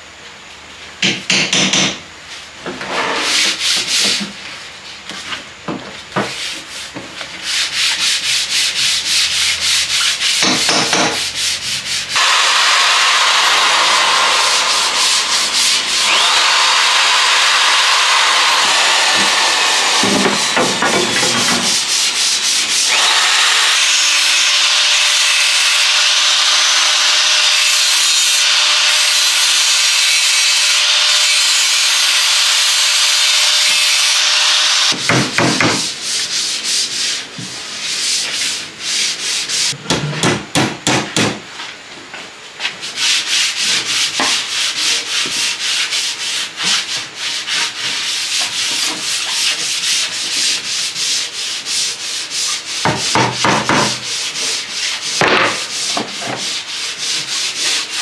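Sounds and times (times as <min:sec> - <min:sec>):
power sander on wood: 0:11.9 - 0:35.0.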